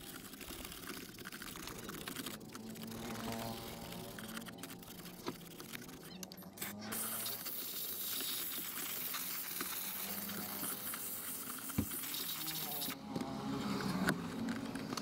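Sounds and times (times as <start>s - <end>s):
pressurised nozzle hissing: 6.6s - 13.0s.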